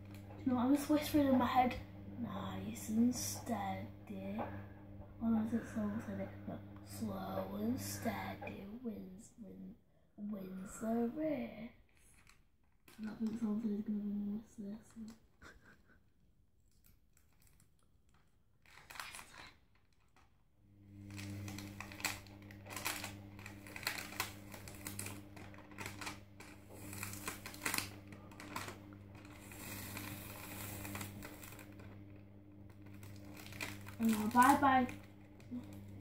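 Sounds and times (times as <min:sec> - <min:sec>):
steady low hum: 0:00.0 - 0:16.0, 0:20.7 - 0:36.0
plastic film peeling and crinkling: 0:11.9 - 0:13.6, 0:16.7 - 0:20.4, 0:21.0 - 0:36.0.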